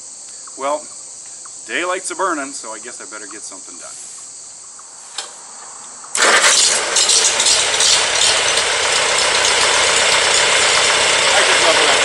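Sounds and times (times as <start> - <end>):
tractor engine starting and running: 6.1 - 12.0.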